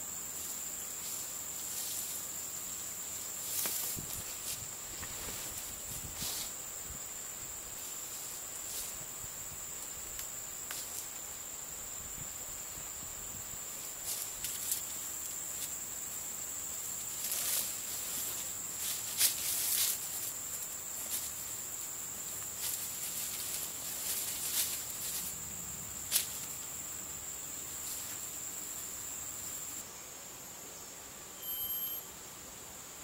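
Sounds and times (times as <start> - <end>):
high-pitched insect drone: 0.0 - 33.0
rustles on dry pine needles: 0.3 - 11.4, 13.0 - 29.8.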